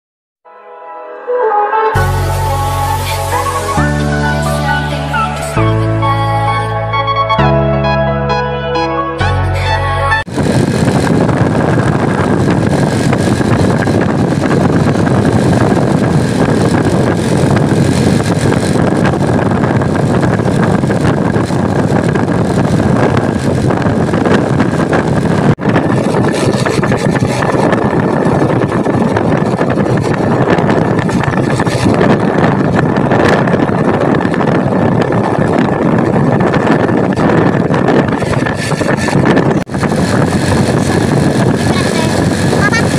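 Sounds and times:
vehicles driving on road: 0:10.3 - 0:42.9.

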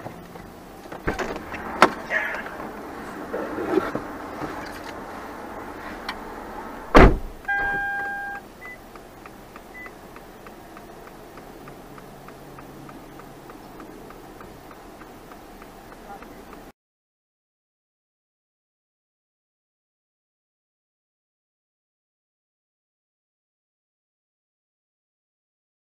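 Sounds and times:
loud thump: 0:01.0 - 0:02.0, 0:06.9 - 0:07.8
faint voices: 0:01.6 - 0:03.8
short electronic beep: 0:07.4 - 0:08.8
quick steady ticking: 0:08.4 - 0:16.7.

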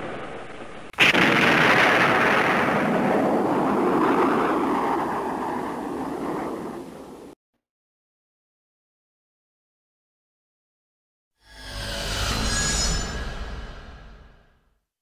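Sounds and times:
explosion blast and rumble: 0:00.0 - 0:07.4.

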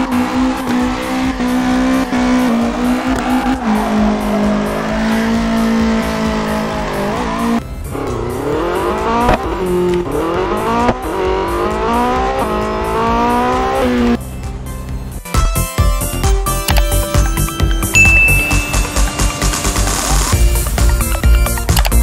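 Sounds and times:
sports car engine revving: 0:00.0 - 0:14.4.

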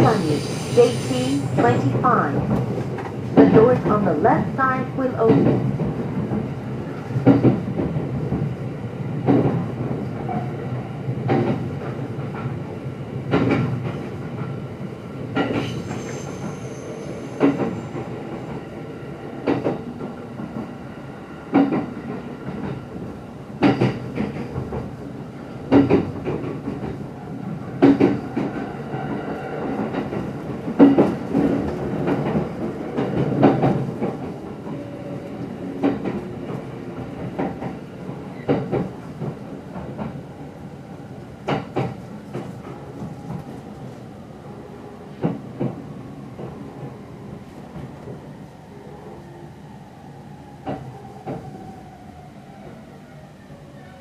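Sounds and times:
high squeal: 0:00.0 - 0:01.8, 0:15.7 - 0:17.4
train rolling noise: 0:00.0 - 0:54.0.

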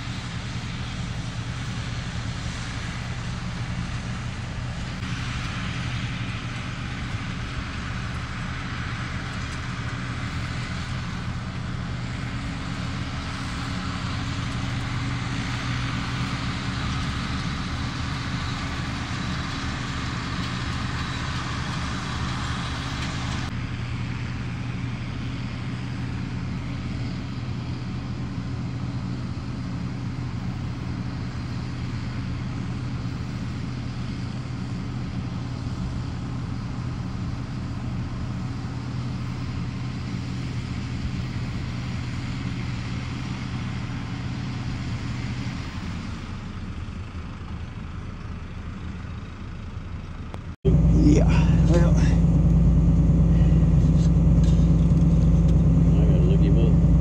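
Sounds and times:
rushing noise of baler: 0:00.0 - 0:57.0
tractor diesel engine running: 0:00.0 - 0:57.0.

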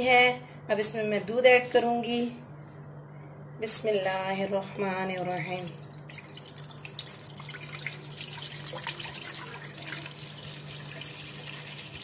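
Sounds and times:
milk pouring and splashing in pan: 0:05.7 - 0:12.0.

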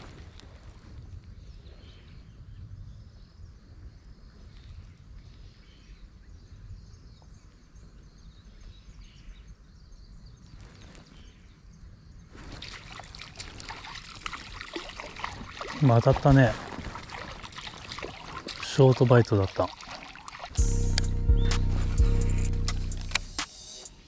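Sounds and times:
water sloshing and splashing: 0:12.3 - 0:20.6.

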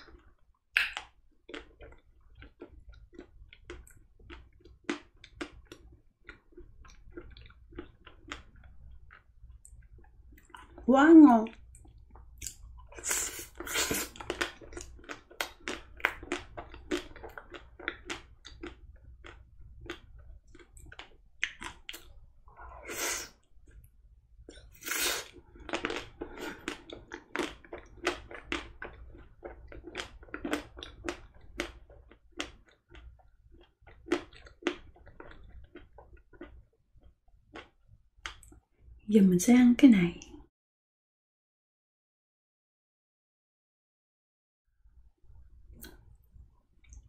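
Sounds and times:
wet mouth clicks: 0:00.7 - 0:01.7, 0:11.7 - 0:14.2, 0:21.4 - 0:22.1.

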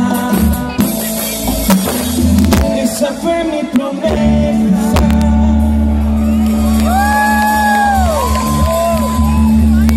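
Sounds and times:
deep bass: 0:00.0 - 0:09.9
live band music over pa: 0:00.0 - 0:09.9.

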